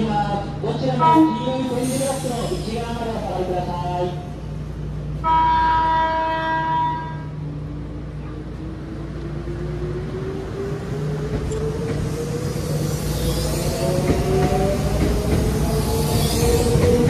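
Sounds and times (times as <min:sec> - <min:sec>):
train horn: 0:05.2 - 0:07.4.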